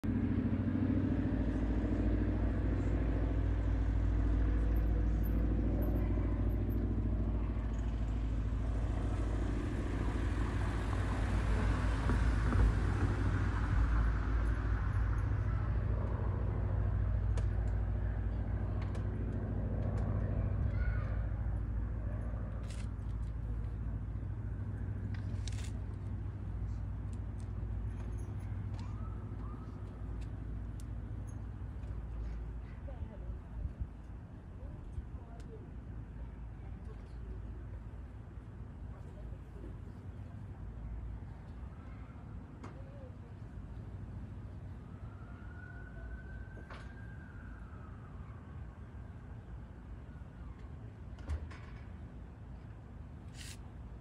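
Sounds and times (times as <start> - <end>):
traffic engine rumble: 0.0 - 54.0
vehicle passing: 7.4 - 22.6.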